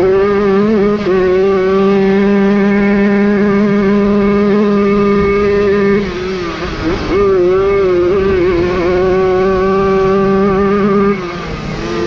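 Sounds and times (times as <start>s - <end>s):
moped engine at high revs: 0.0s - 12.0s.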